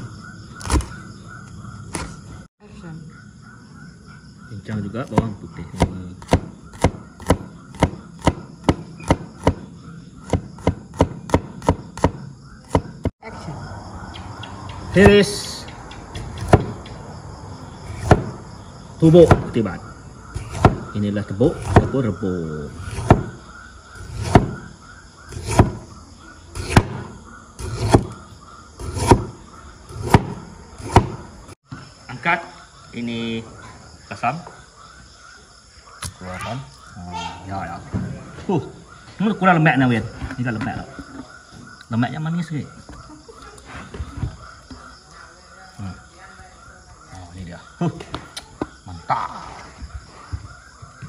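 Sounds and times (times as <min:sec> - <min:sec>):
cleaver chopping on cutting board: 0:05.2 - 0:09.6, 0:10.3 - 0:12.9, 0:17.9 - 0:18.4, 0:20.4 - 0:20.9, 0:21.6 - 0:22.0, 0:22.9 - 0:23.4, 0:24.1 - 0:24.6, 0:25.3 - 0:25.8, 0:26.6 - 0:28.2, 0:28.8 - 0:31.2
cleaver knocking on cutting board: 0:22.9 - 0:23.4.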